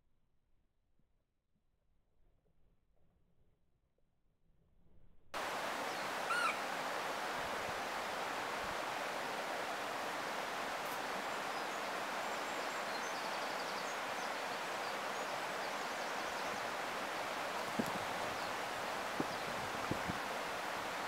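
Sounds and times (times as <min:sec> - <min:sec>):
river water rushing: 0:05.4 - 0:21.0
bird call: 0:05.7 - 0:06.8.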